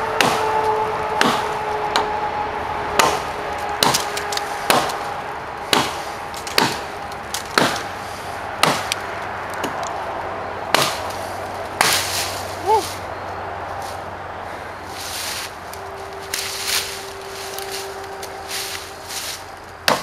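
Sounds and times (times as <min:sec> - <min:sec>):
axe chopping log: 0:00.2 - 0:02.1, 0:03.0 - 0:05.0, 0:05.7 - 0:07.9, 0:08.6 - 0:09.8, 0:10.7 - 0:11.1, 0:11.8 - 0:12.2.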